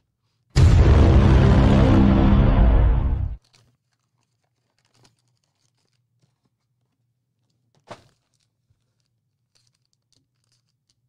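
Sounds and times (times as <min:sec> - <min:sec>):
card pack wrapper crinkling: 0:03.4 - 0:11.0.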